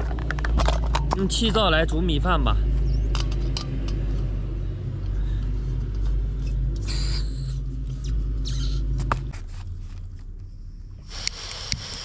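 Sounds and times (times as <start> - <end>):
low rumble and hum: 0.0 - 12.0
gas hiss: 11.0 - 12.0.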